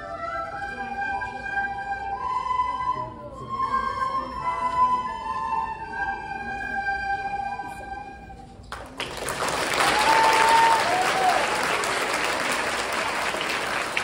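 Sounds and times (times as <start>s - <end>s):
children playing recorders: 0.0s - 8.7s
audience applause: 8.7s - 14.0s.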